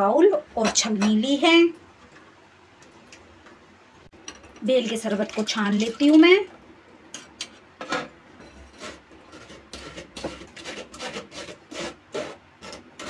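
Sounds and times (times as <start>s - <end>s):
pulp scraping on metal sieve: 7.9s - 13.0s.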